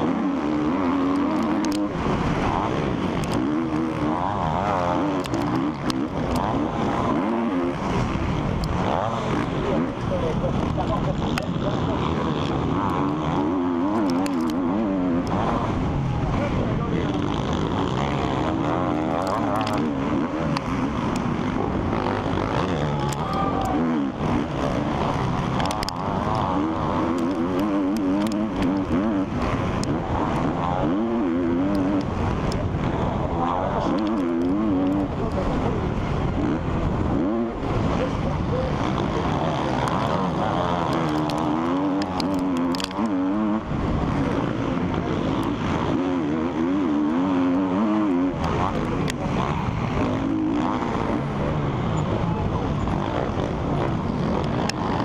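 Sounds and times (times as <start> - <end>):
motocross bike engine revving: 0.0 - 55.0
sharp clicks: 40.7 - 43.2.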